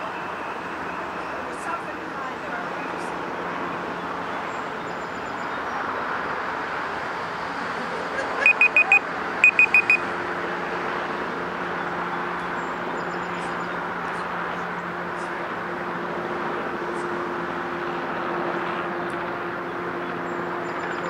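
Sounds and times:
short high-pitched beeps: 8.4 - 10.1.

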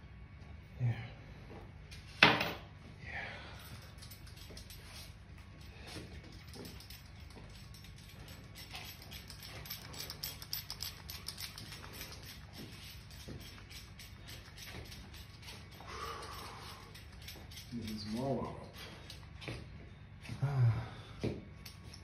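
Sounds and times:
small clicks and rustles: 3.6 - 18.2.

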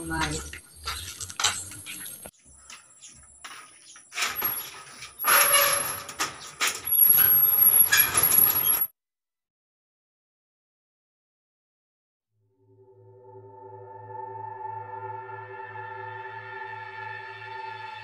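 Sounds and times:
metal gate rattling and scraping: 0.0 - 2.3, 3.0 - 8.9.

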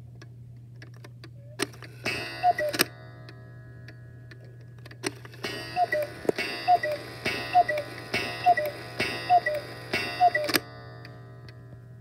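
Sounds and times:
clock mechanism click: 0.8 - 11.8
cuckoo clock calls: 2.0 - 3.4, 5.4 - 11.2.

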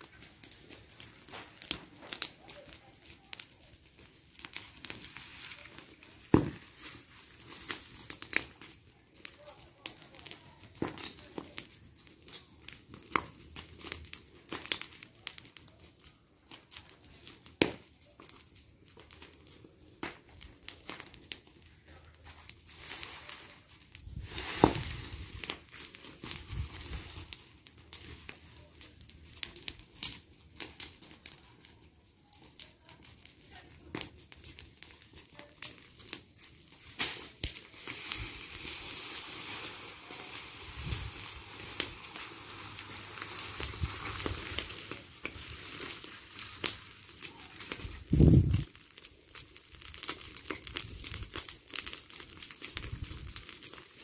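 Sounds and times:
fire crackling and popping: 0.0 - 54.0
dry debris raked: 3.8 - 12.5, 19.0 - 30.2, 35.7 - 54.0.

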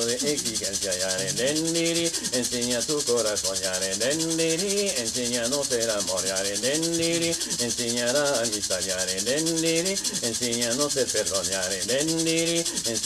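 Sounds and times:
person singing long notes: 0.0 - 3.0
leaf rattle shaken: 0.0 - 13.0.

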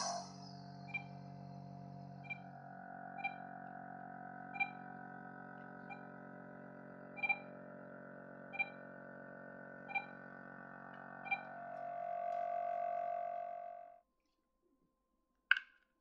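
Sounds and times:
bell-like note: 0.0 - 2.1.

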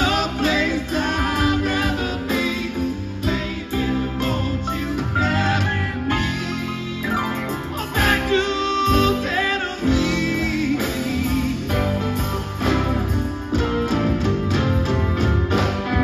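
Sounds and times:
person singing: 0.0 - 12.3
bass: 0.0 - 16.0
drums: 0.0 - 16.0
electric guitar: 0.0 - 16.0
keyboard: 0.0 - 16.0.

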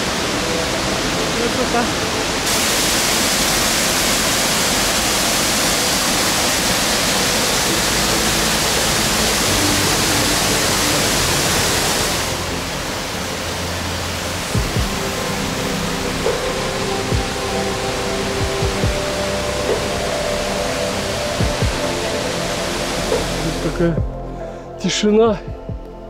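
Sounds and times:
rushing stream water: 0.0 - 24.1.

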